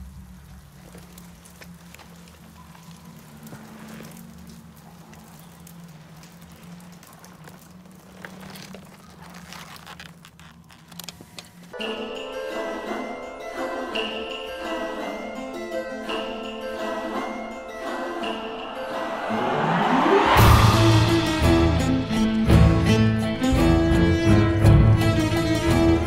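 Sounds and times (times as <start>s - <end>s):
faint crackles: 0.0s - 11.8s
water drips and patter: 0.0s - 11.8s.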